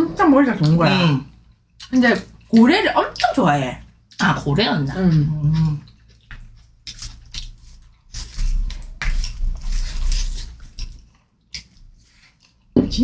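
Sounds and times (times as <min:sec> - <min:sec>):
close chewing with mouth clicks: 0:04.1 - 0:12.8.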